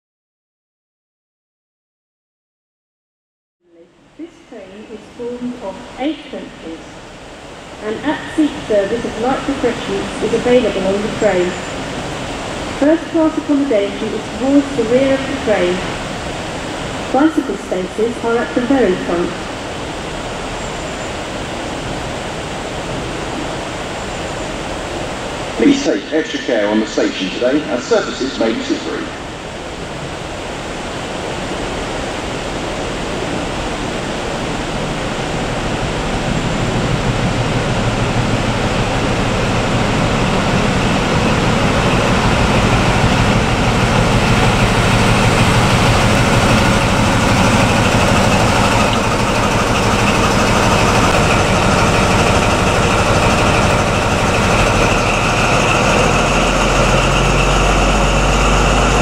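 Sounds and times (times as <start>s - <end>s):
diesel engine low note: 34.8s - 59.0s.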